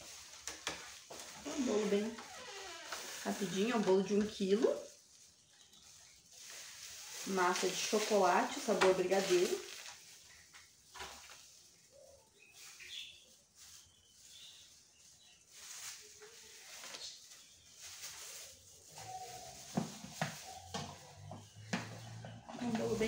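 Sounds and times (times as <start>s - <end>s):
plastic piping bag crinkling: 0.0s - 21.7s.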